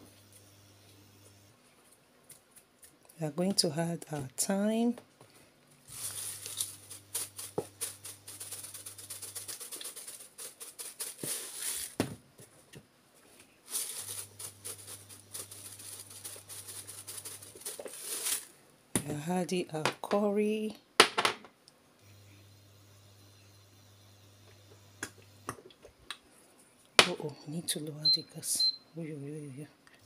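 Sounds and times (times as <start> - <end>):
spice jar rattling: 5.9 - 12.0, 13.7 - 18.5.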